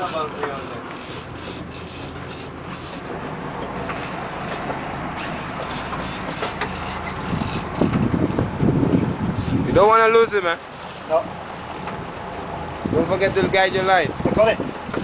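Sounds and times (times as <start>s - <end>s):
boat engine running: 0.0s - 15.0s
rush of wind and water: 0.0s - 15.0s
fishing reel clicking: 0.1s - 3.0s, 5.2s - 7.9s.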